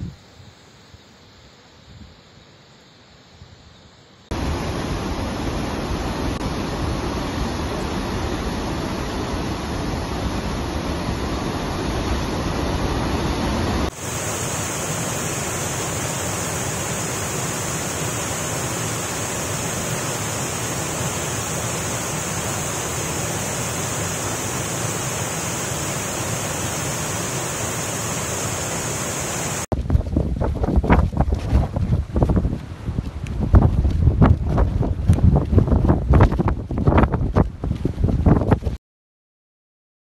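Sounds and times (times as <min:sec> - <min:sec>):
floodwater rushing over waterfalls: 0:04.3 - 0:29.7.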